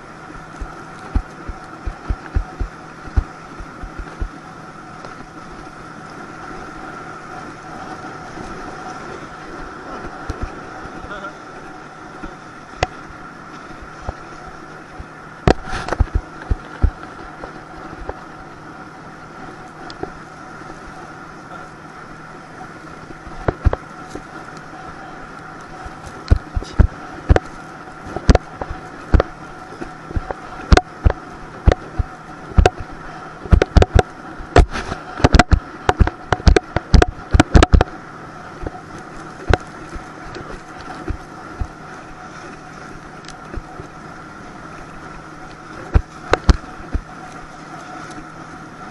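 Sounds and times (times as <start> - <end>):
motorboat engine drone: 0.0 - 48.9
tube knocking and slapping on water: 0.4 - 4.4, 14.9 - 18.2, 23.0 - 24.3, 25.8 - 27.5, 28.1 - 37.9, 39.4 - 41.8, 45.9 - 47.1.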